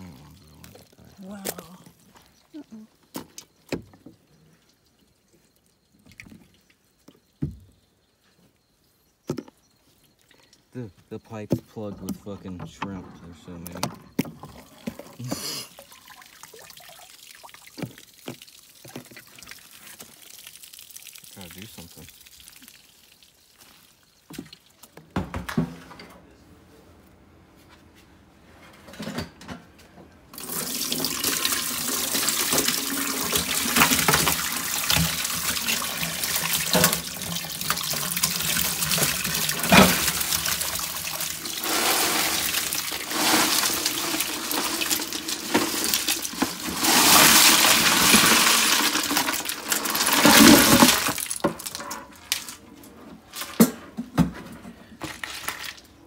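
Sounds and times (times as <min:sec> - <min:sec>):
tap water running into sink: 0:15.8 - 0:23.3, 0:30.4 - 0:51.8.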